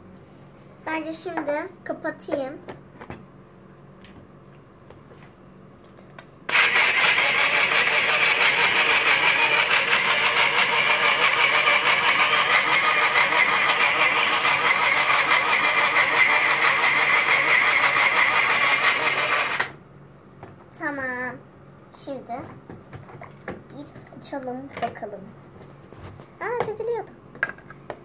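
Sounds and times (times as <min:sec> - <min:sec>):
toy food processor motor whirring: 0:06.5 - 0:19.8.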